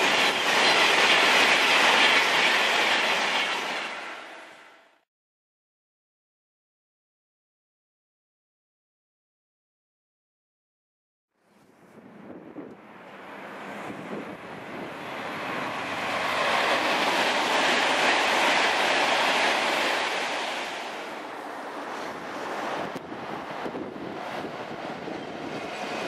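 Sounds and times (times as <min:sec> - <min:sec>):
electric train passing at speed: 0:00.0 - 0:05.0, 0:11.8 - 0:26.0.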